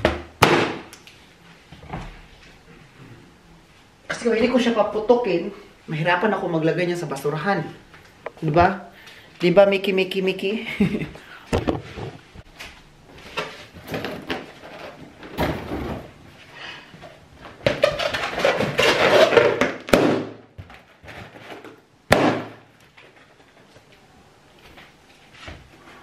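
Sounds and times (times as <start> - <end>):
balloon popping: 18.6 - 20.4, 22.1 - 22.6.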